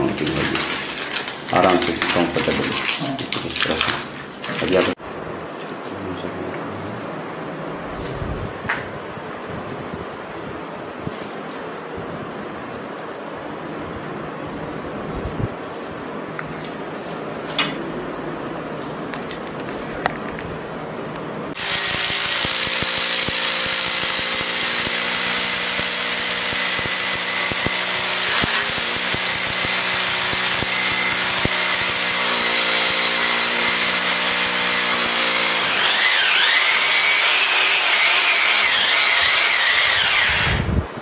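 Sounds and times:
hammer drill boring into wall: 0.0s - 3.0s, 21.6s - 40.6s.

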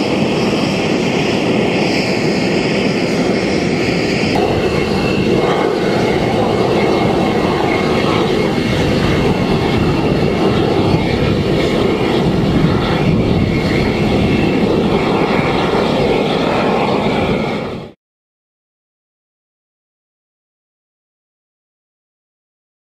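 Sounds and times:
jet engine rushing: 0.0s - 18.0s.

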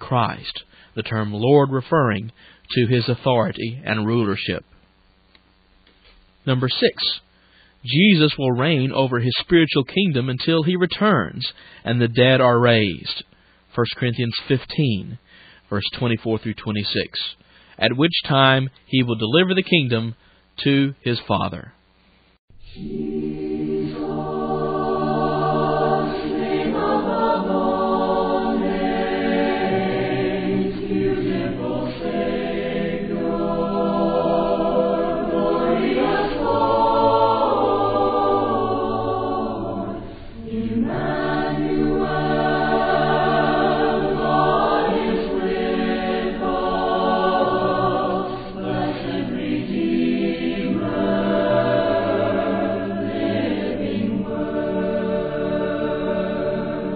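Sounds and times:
choir singing a hymn: 22.6s - 56.9s.

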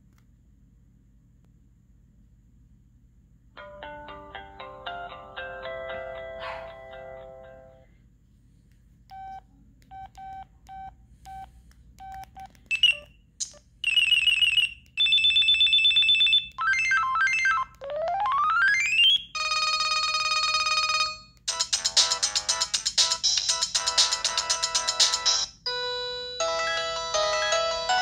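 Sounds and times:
phone keypad beeps: 9.1s - 13.1s
phone ringtone melodies: 13.8s - 28.0s.

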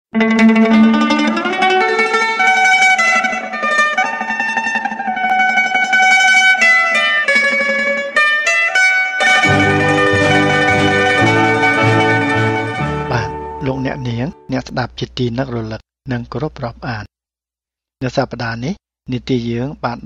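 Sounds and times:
plucked string melody: 0.1s - 14.5s
bass notes: 9.2s - 14.6s.

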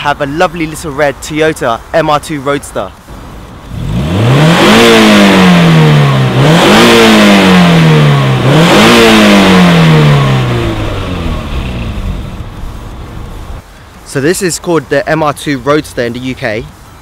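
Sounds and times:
car engine revving: 3.0s - 13.6s.

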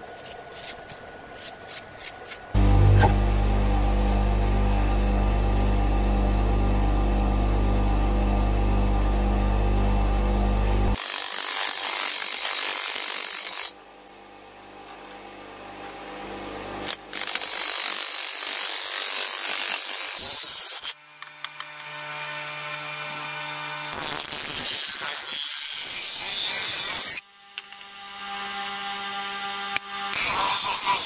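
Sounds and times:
grinder wheel grinding steel blade: 0.0s - 6.2s, 10.4s - 13.8s, 16.8s - 27.2s, 29.8s - 31.0s
grinder motor humming: 2.5s - 11.1s.

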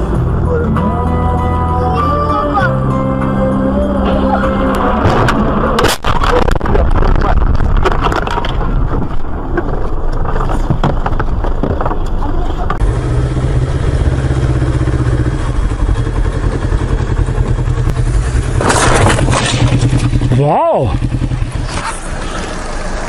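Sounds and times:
car road noise: 0.0s - 23.0s
motorcycle engine running: 12.7s - 23.0s.

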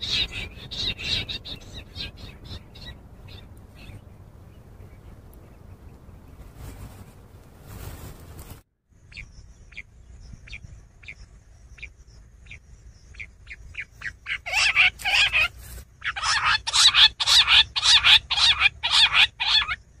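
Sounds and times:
quail calling: 0.0s - 5.8s, 13.2s - 19.8s.

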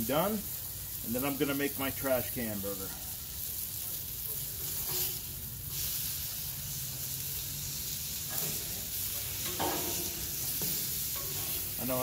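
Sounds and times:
patties sizzling on a griddle: 0.0s - 12.0s
metal spatula turning patty: 3.9s - 6.0s, 8.2s - 12.0s.

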